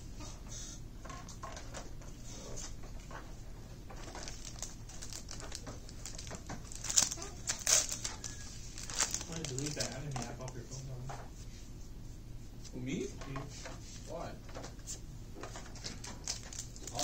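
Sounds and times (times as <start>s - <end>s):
cards rustling and clicking: 3.9s - 10.8s, 15.4s - 17.0s
foil pack tearing open: 4.0s - 10.3s, 15.9s - 17.0s.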